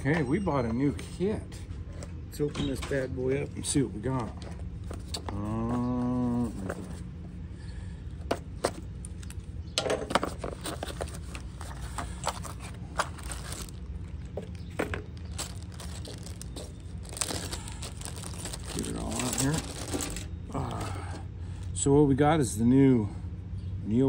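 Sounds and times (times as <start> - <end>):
cardboard box tearing: 10.4 - 13.8, 15.3 - 20.3
plastic bag crinkling: 10.5 - 20.8.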